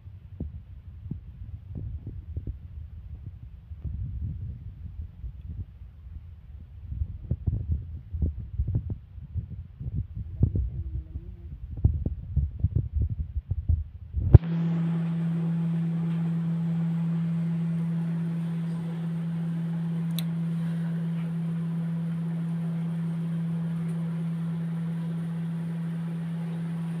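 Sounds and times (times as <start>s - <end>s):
steady low hum: 0.0s - 27.0s
low thumps: 0.4s - 14.8s.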